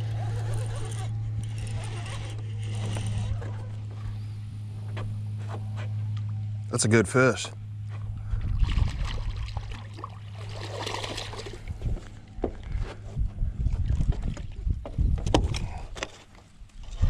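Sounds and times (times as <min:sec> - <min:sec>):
low rumble: 0:00.0 - 0:16.0
fish splashing at water surface: 0:08.6 - 0:11.7.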